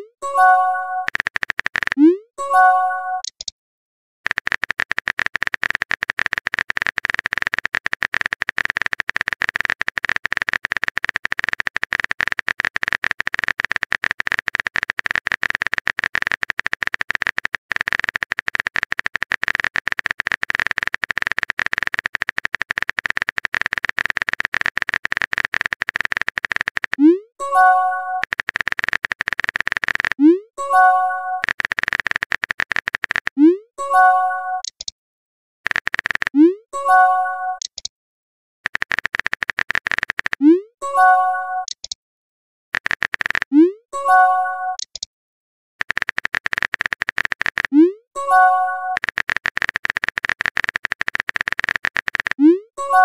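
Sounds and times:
phone keyboard key clicks: 1.1 - 2.0, 4.3 - 27.0, 34.6 - 34.9, 35.7 - 36.4, 38.7 - 40.4, 42.8 - 43.5, 44.8 - 45.1, 45.8 - 47.7, 49.0 - 52.4.

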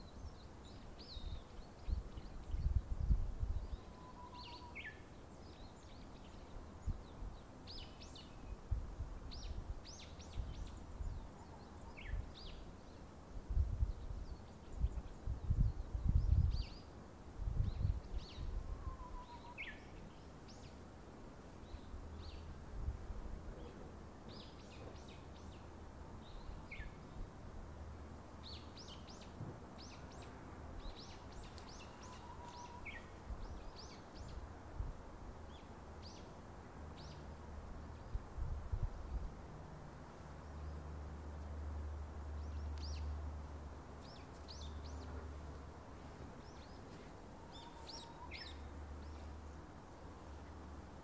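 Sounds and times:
small birds chirping: 0.0 - 22.6, 23.4 - 39.3, 39.9 - 51.0
wind buffeting microphone: 1.1 - 3.8, 13.4 - 16.8, 17.4 - 19.1.

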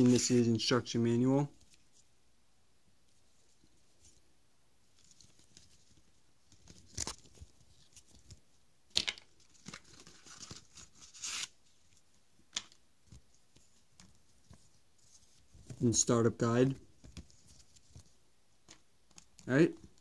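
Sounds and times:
paper and card rustling: 0.0 - 0.7, 4.9 - 20.0.

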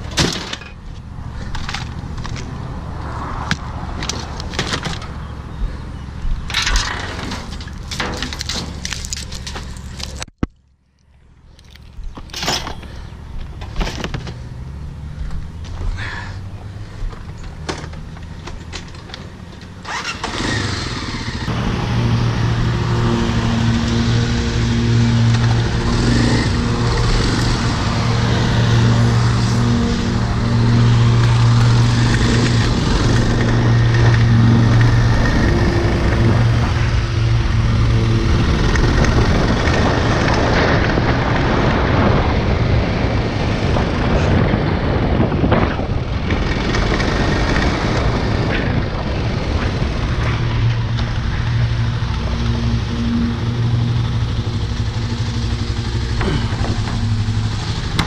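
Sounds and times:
motorcycle engine: 0.0 - 10.4, 12.2 - 58.0
wind rushing over microphone: 19.9 - 58.0.

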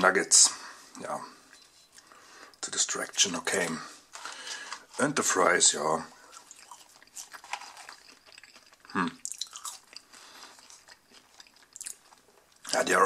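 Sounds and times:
person chewing fries: 6.1 - 12.9.

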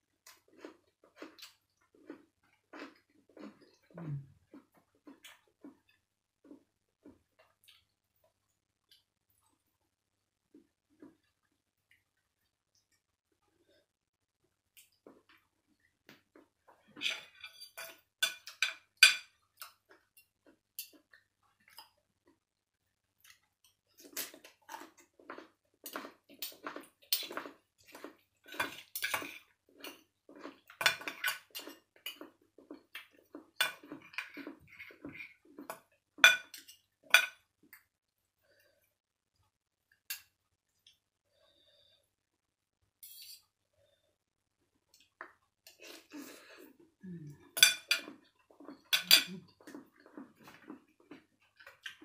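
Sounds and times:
cutlery clinking on a plate: 17.0 - 19.7, 30.8 - 32.2, 35.7 - 37.4, 47.6 - 48.2, 48.9 - 49.3.

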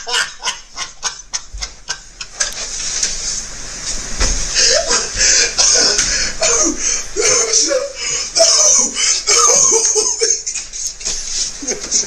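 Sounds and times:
man wheezing laughter: 0.0 - 2.5, 4.6 - 11.0.

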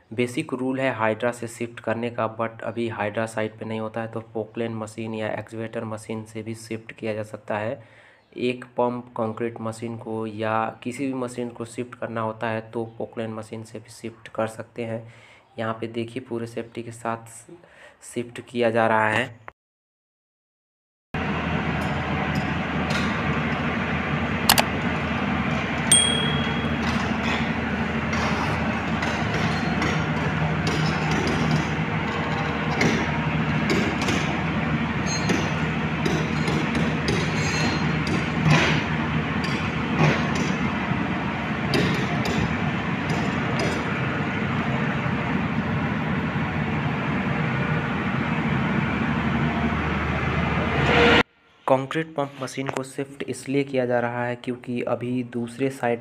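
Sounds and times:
excavator diesel engine running: 21.2 - 50.8
sharp metallic clink: 25.9 - 26.9
high metallic ring: 25.9 - 27.5, 35.0 - 35.6.

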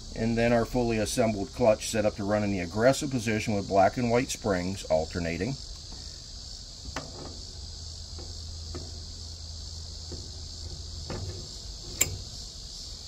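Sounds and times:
crickets chirring: 0.0 - 13.0
low steady hum: 0.0 - 13.0
light metal clicks of drum clutch: 6.8 - 13.0.

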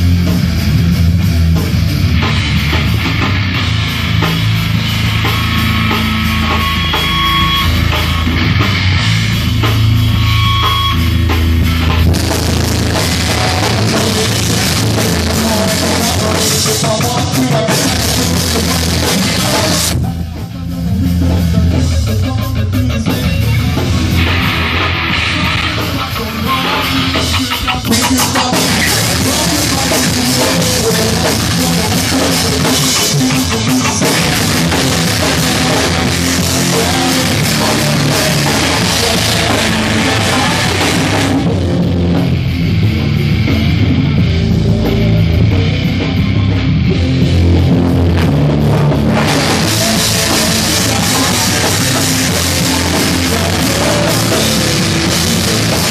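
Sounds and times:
bass guitar: 0.0 - 55.9
drum kit: 0.0 - 55.9
electric guitar: 0.0 - 55.9.

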